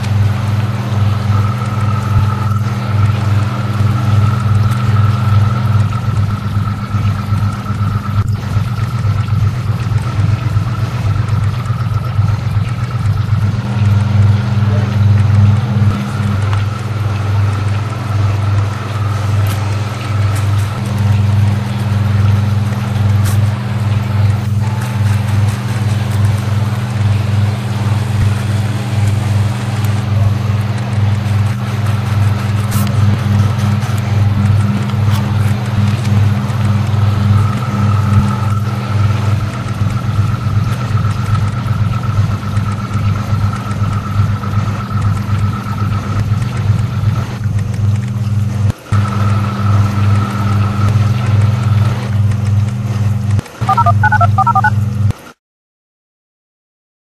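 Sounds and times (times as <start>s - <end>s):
mechanical drone: 0.0s - 55.0s
thin steady high tone: 53.6s - 54.7s.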